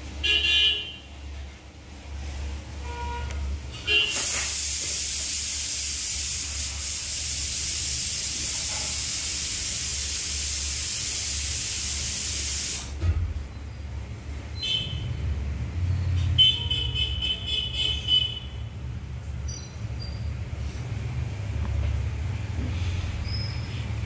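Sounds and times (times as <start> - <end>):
steady hiss: 4.1 - 13.0.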